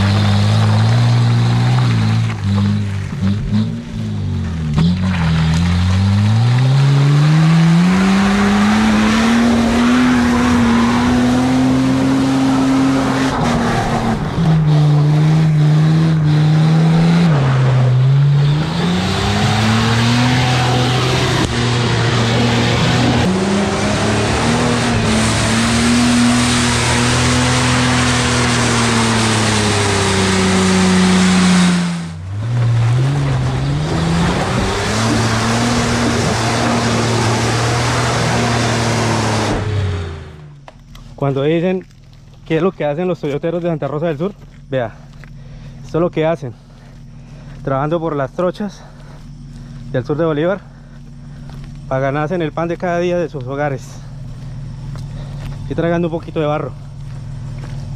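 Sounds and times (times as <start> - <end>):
truck engine revving hard: 0.0 - 40.6.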